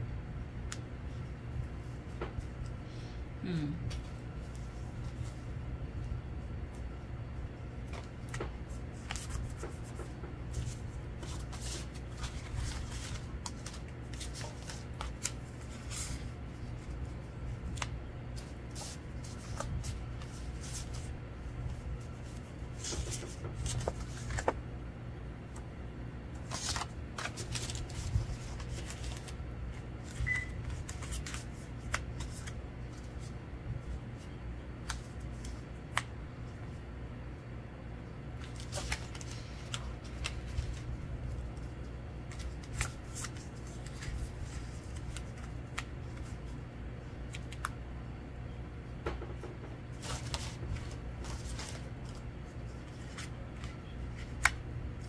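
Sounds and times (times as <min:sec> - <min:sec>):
steady low hum: 0:00.0 - 0:55.0
paper rustling: 0:07.8 - 0:21.1, 0:21.7 - 0:24.6, 0:26.4 - 0:33.4, 0:38.4 - 0:46.5, 0:49.9 - 0:55.0.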